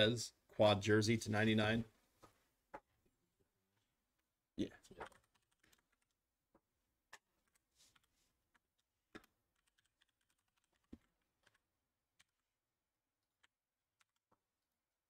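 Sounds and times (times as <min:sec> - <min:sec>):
faint keyboard typing: 0:04.6 - 0:12.6, 0:13.2 - 0:14.5.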